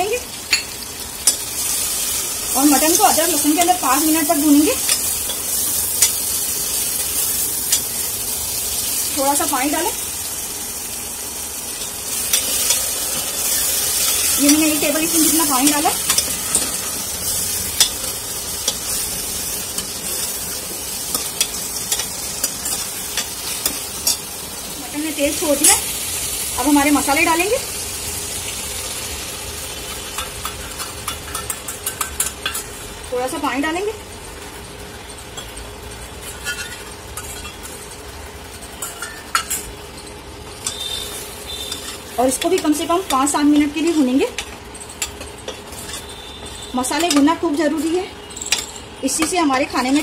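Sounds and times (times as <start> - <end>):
meat sizzling: 0.0 - 50.0
metal spoon scraping pot: 36.2 - 37.8
spoon clinking on steel bowl: 38.8 - 39.7, 47.0 - 47.3.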